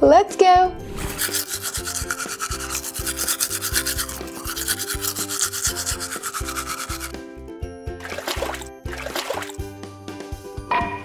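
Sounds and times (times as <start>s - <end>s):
light background music: 0.0s - 11.0s
toothbrush scrubbing: 1.0s - 7.2s, 8.0s - 9.6s.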